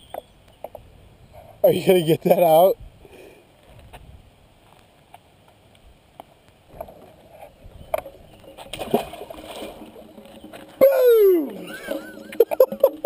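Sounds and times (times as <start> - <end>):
fish splashing into water: 8.6 - 12.4.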